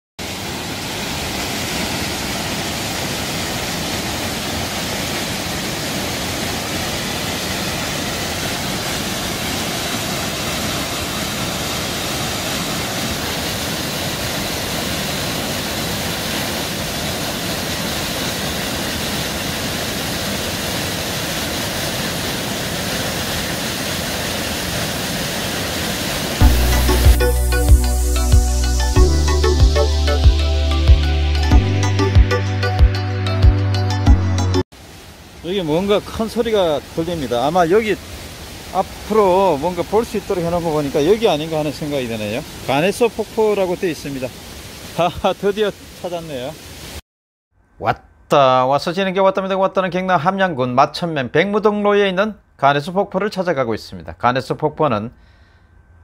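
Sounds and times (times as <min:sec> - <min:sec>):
waterfall roaring: 0:00.2 - 0:28.9, 0:34.8 - 0:47.0.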